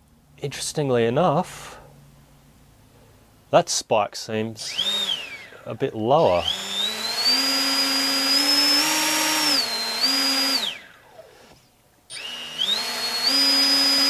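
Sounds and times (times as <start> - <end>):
electric motor propeller whining: 4.6 - 14.0.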